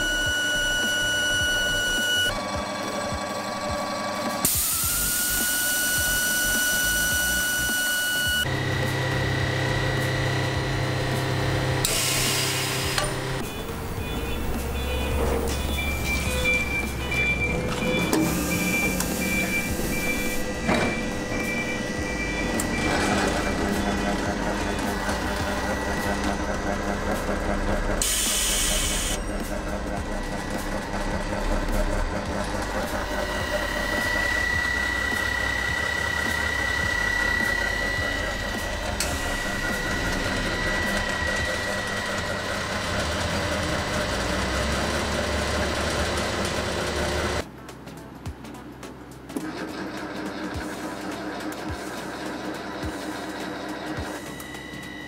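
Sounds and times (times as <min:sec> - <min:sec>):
machine low hum: 0:00.0 - 0:47.4
high whine: 0:00.0 - 0:47.5
continuous higher machine tone: 0:00.0 - 0:55.0
short high beeps: 0:13.5 - 0:23.6.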